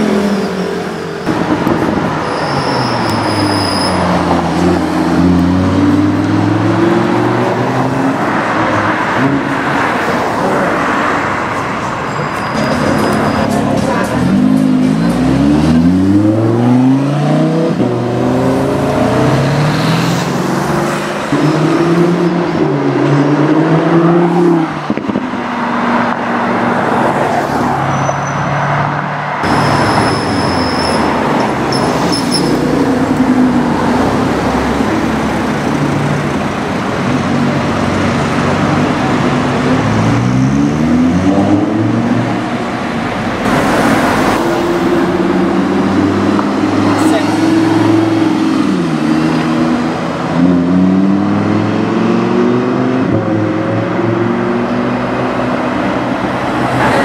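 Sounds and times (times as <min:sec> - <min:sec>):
sports car accelerating: 0:03.3 - 0:11.0, 0:13.0 - 0:27.7, 0:28.8 - 0:57.0.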